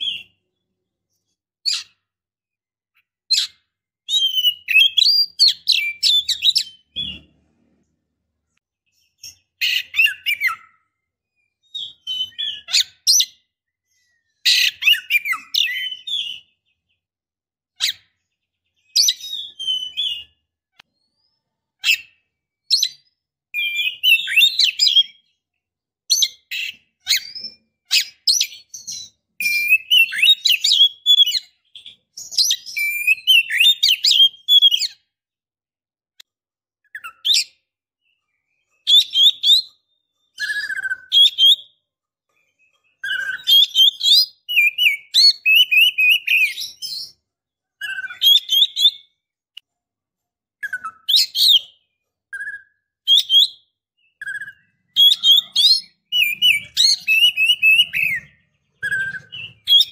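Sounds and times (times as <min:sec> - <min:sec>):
bird chirps and whistles: 0:00.0 - 0:00.4, 0:01.6 - 0:02.0, 0:03.3 - 0:07.2, 0:08.9 - 0:16.9, 0:18.8 - 0:25.4, 0:26.1 - 0:35.1, 0:36.9 - 0:37.6, 0:38.8 - 0:41.8, 0:42.8 - 0:47.2, 0:47.8 - 0:49.2, 0:50.6 - 0:59.9.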